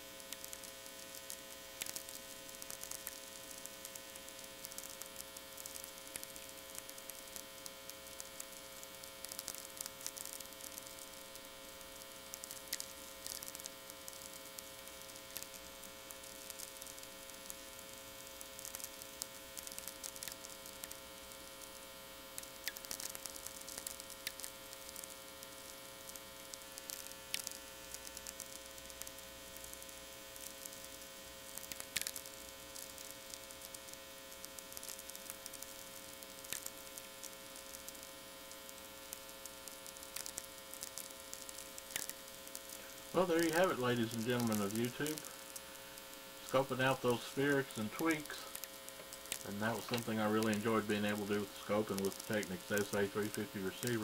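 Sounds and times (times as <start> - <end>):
crackle of radio static: 0.0 - 54.0
power-line hum: 0.0 - 54.0.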